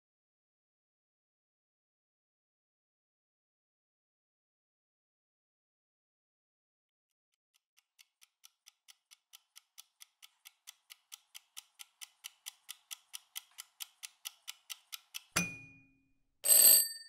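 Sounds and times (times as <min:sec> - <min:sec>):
kitchen timer ticking: 0:07.8 - 0:15.8.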